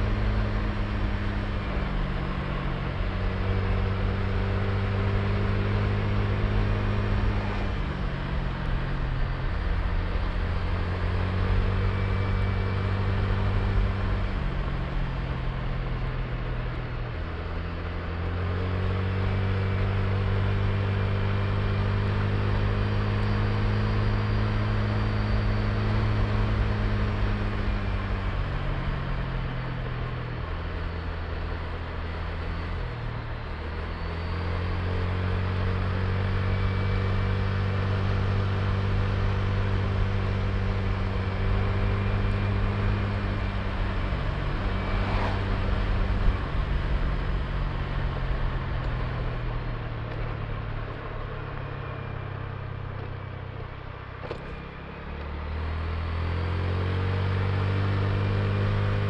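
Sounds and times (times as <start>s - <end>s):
wind and road noise: 0.0s - 59.0s
scooter engine running: 30.5s - 56.8s.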